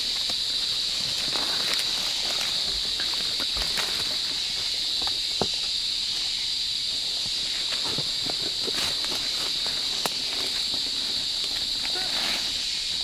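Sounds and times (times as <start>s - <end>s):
dry leaves rustling and crackling: 0.0s - 4.9s
high-pitched insect hiss: 0.0s - 13.0s.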